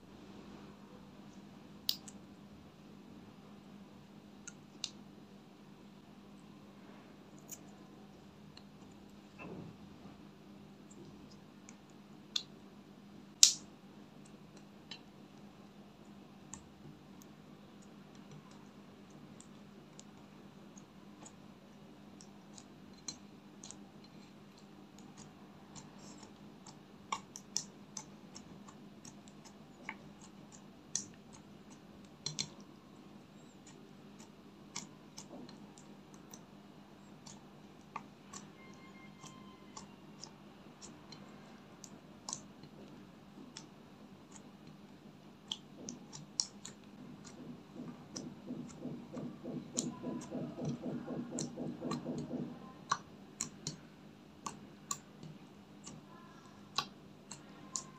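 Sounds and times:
slime squelches: 17.9 - 57.9.

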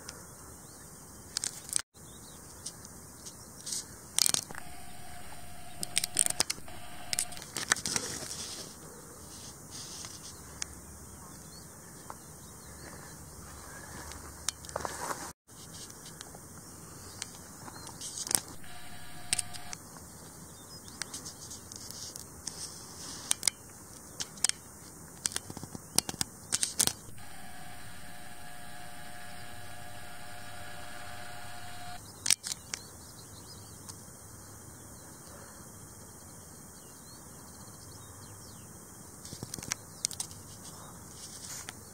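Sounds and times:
camera zoom motor whine: 4.5 - 7.5, 18.5 - 19.8, 27.1 - 32.0
faint high hiss: 27.1 - 32.0.

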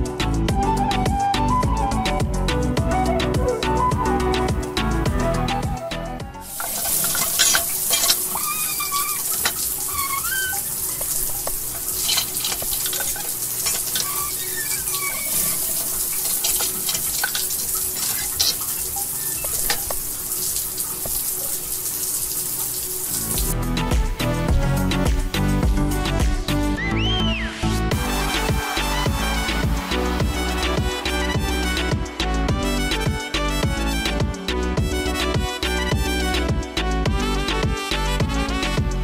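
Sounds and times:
water running and splashing: 6.4 - 23.6.

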